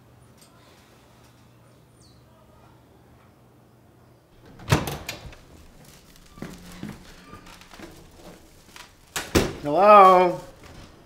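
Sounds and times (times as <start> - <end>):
door knocking and rattling: 4.4 - 5.8.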